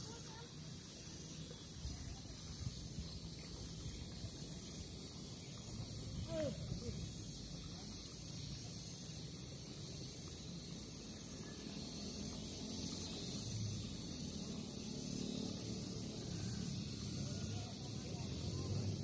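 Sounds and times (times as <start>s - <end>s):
high insect chorus: 0.0s - 19.0s.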